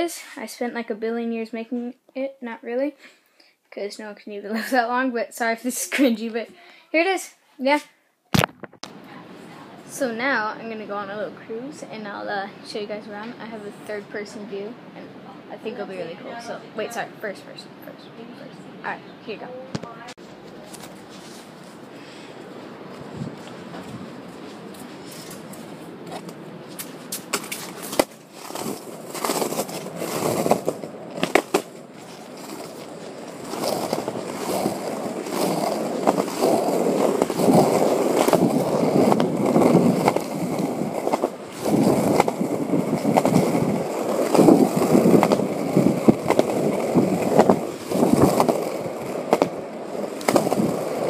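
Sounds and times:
skateboard wheels rolling on concrete: 7.6 - 51.0
skateboard being handled: 19.7 - 21.9, 22.9 - 51.0.

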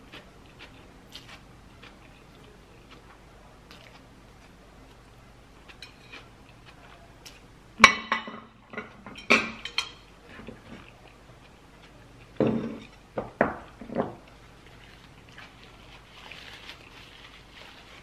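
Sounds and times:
utensils clinking against dishes: 5.7 - 6.2, 7.8 - 10.9.

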